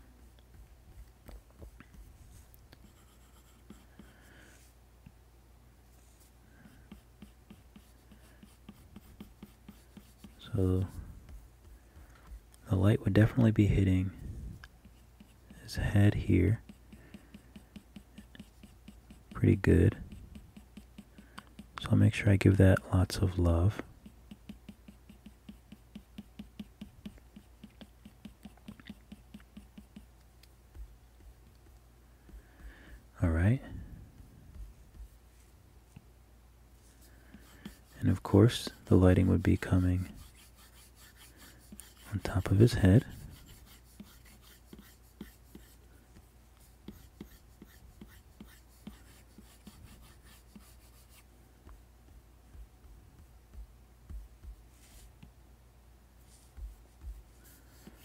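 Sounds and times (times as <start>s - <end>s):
stylus scratching on tablet screen: 0.5s - 4.1s, 6.6s - 13.8s, 14.8s - 22.3s, 23.7s - 32.7s, 33.8s - 35.2s, 36.9s - 55.2s, 56.3s - 58.0s
stylus tapping on tablet screen: 24.0s - 32.9s, 51.6s - 55.3s, 56.5s - 58.0s.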